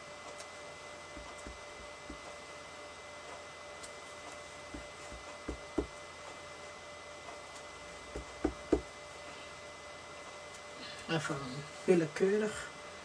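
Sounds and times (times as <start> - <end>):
faint steady hum: 0.0 - 13.0
rubber stamp knocking on paper: 1.1 - 2.3, 4.7 - 6.0, 8.1 - 8.9.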